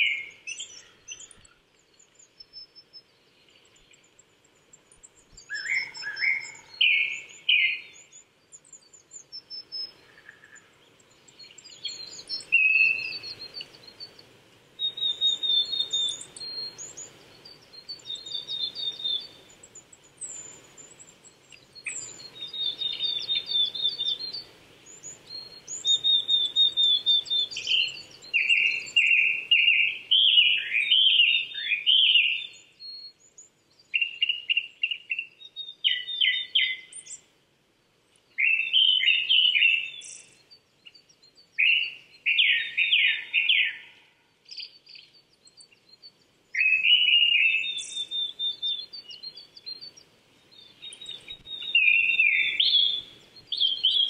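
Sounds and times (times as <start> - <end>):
thrush singing whistled phrases: 0.0 - 1.4, 5.4 - 8.2, 11.4 - 14.2, 14.8 - 19.6, 21.8 - 32.7, 41.3 - 43.9, 46.6 - 50.0, 50.6 - 54.0.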